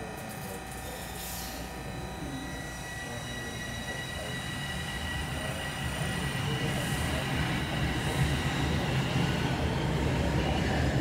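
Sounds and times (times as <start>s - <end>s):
electric traction whine: 0.0s - 11.0s
train wheels rumbling on rail: 2.5s - 11.0s.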